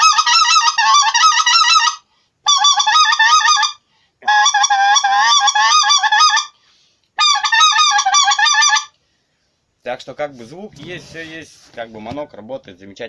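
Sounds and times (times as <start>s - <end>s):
goose call blown: 0.0s - 6.6s, 7.2s - 9.0s.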